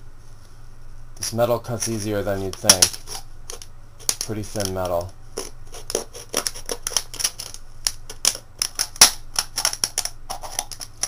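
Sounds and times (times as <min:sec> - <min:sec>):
can wall crackling and clicking: 0:02.4 - 0:11.0.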